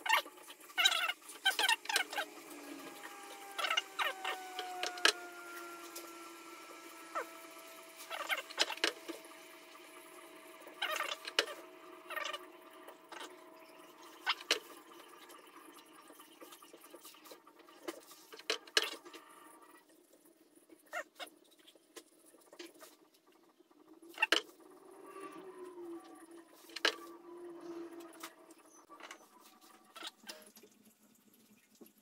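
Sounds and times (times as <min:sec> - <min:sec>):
wood lathe humming: 0:01.6 - 0:15.3.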